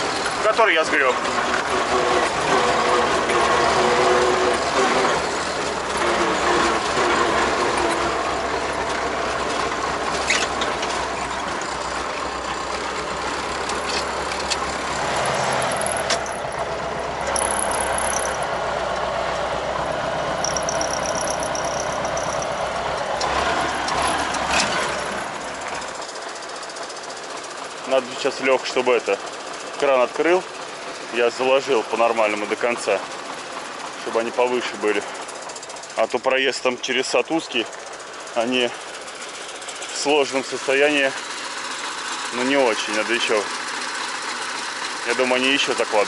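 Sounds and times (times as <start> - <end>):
machinery rattling: 0.0 - 46.0
tractor diesel engine running: 0.0 - 46.0
thin high squeal: 17.4 - 18.5, 20.4 - 22.8.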